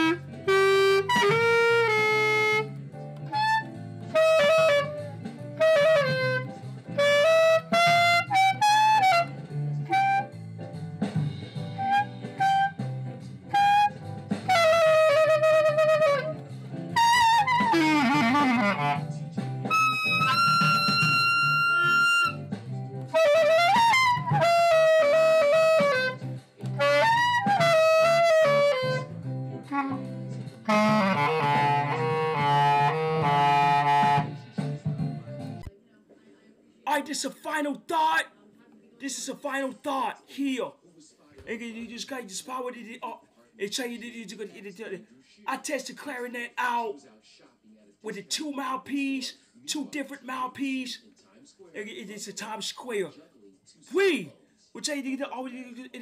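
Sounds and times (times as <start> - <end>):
clarinet playing: 0.0 - 10.4, 11.7 - 12.9, 13.5 - 19.1, 19.7 - 34.4.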